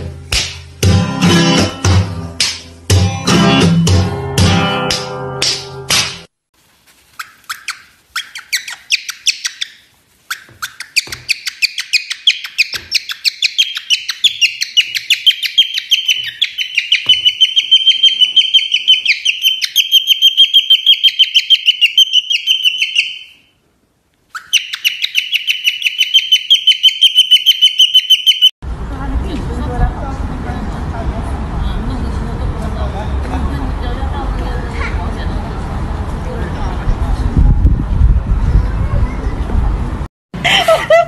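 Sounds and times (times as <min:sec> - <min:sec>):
crumpled paper crackling: 0:06.6 - 0:08.1
cockatiel chirping: 0:07.1 - 0:23.5, 0:24.3 - 0:28.5.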